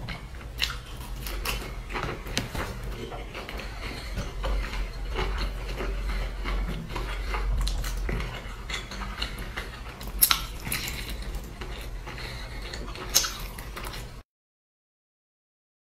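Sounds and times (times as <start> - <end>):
biting and chewing: 0.0 - 14.2
spoon scraping glass bowl: 3.2 - 14.0.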